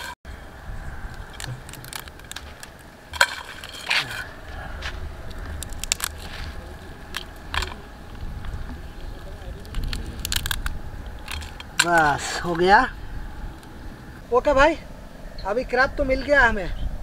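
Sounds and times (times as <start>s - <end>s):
crab shell cracking: 1.1s - 12.7s.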